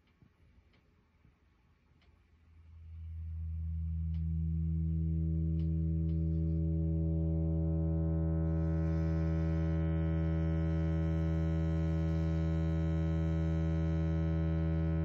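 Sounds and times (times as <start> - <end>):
filtered low synth drone: 2.6 - 15.0.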